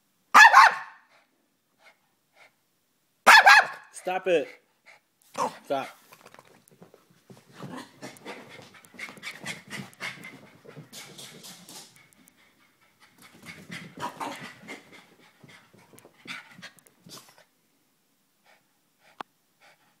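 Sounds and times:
dog panting: 0:04.4 - 0:06.1, 0:06.7 - 0:17.5, 0:18.4 - 0:20.0.

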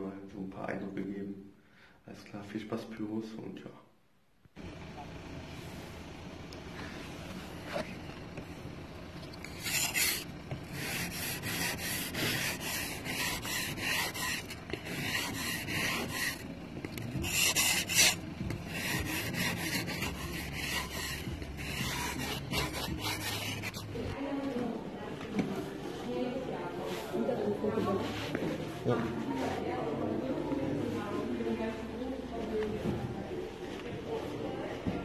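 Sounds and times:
ice scraper scraping car window: 0:09.4 - 0:23.8.

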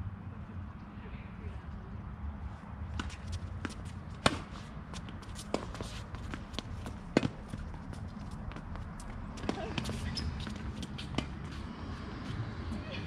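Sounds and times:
tennis ball struck by racket: 0:03.0 - 0:07.5
footsteps on court: 0:03.0 - 0:12.5.

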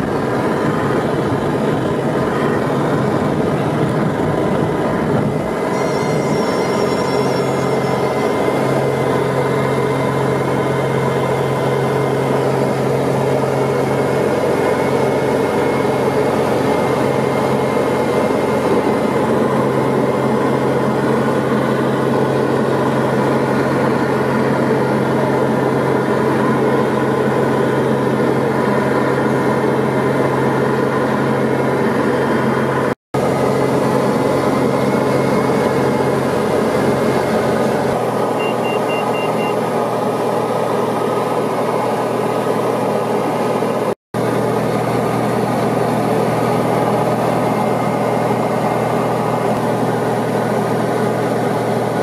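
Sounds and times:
light aircraft engine drone: 0:00.0 - 0:52.0
faint beeps: 0:05.6 - 0:08.8, 0:38.4 - 0:39.6.

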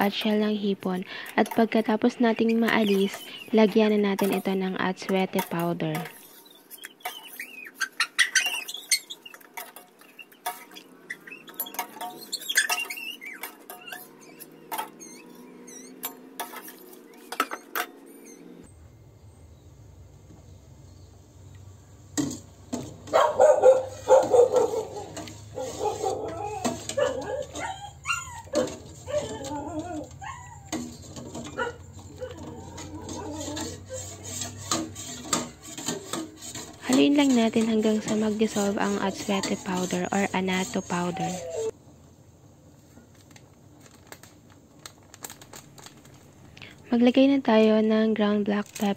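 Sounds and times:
metal ladle scraping a pot: 0:01.0 - 0:18.4, 0:22.2 - 0:41.8
animal calls: 0:23.1 - 0:34.7, 0:40.8 - 0:41.7.

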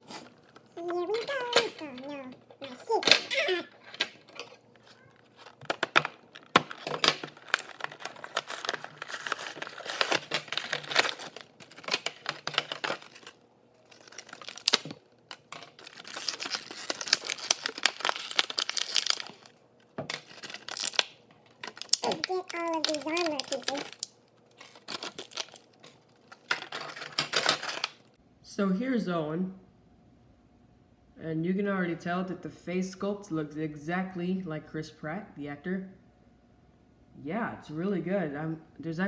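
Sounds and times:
plastic packaging crinkling: 0:02.9 - 0:28.2.

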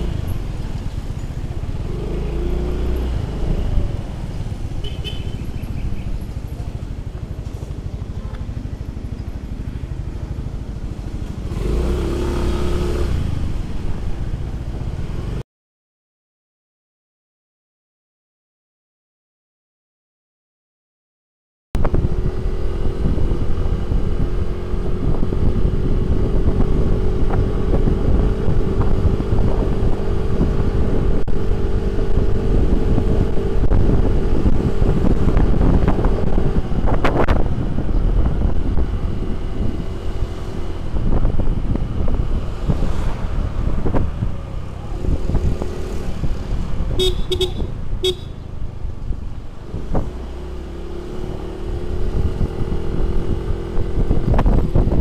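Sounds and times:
wind rumbling on microphone: 0:00.0 - 0:15.4, 0:21.8 - 0:55.0
vehicle horn beeps: 0:04.8 - 0:05.7, 0:47.0 - 0:48.4.

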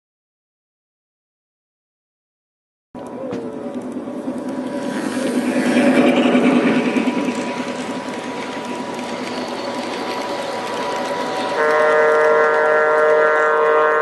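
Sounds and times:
model train wheels rattling: 0:03.0 - 0:14.0
multi-tone train horn: 0:11.4 - 0:14.0.

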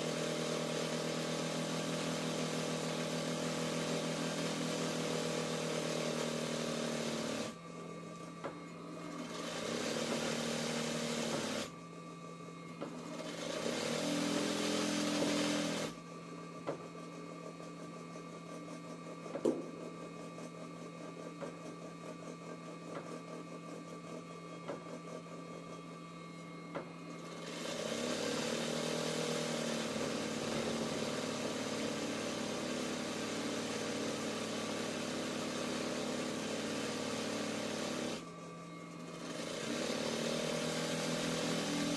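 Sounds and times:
sewing machine stitching: 0:00.0 - 0:07.6, 0:09.0 - 0:11.7, 0:13.0 - 0:16.0, 0:27.2 - 0:38.2, 0:39.0 - 0:41.9.

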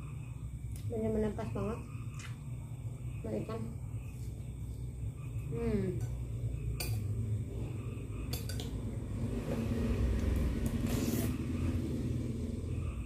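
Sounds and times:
steady low rumble: 0:00.0 - 0:13.0
metal spoon on a plate: 0:05.9 - 0:07.2, 0:08.2 - 0:08.8.

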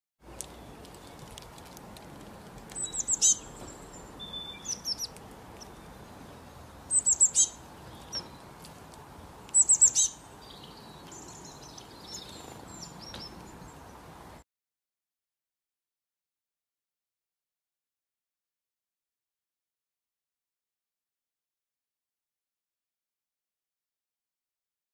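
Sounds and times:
songbird high chirps: 0:02.7 - 0:14.1.

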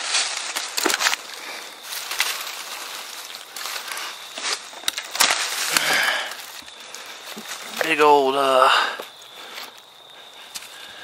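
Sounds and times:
dry leaves rustling and crackling: 0:00.0 - 0:08.4.

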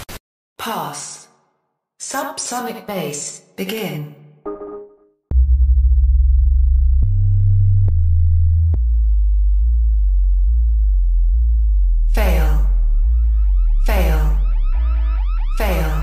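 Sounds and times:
deep sine test tones: 0:05.3 - 0:16.0.

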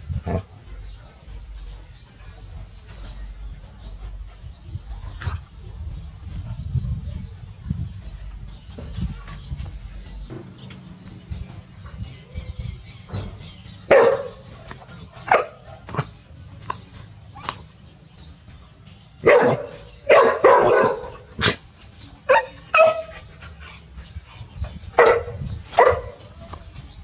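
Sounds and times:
dogs barking: 0:10.4 - 0:17.8, 0:19.2 - 0:26.4.

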